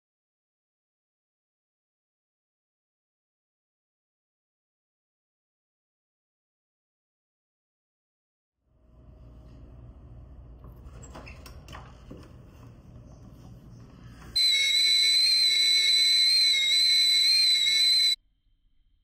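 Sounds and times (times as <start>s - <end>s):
kettle whistling: 14.4s - 18.2s.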